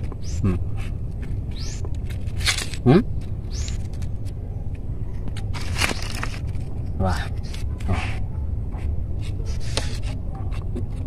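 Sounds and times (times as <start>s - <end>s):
fruit peel tearing crackles: 0.0s - 4.4s.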